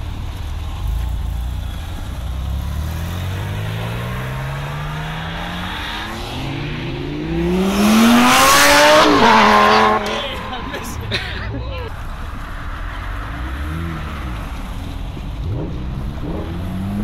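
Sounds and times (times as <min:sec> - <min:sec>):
sports car accelerating: 0:00.3 - 0:17.0
sports car engine revving: 0:00.4 - 0:11.2, 0:13.0 - 0:17.0.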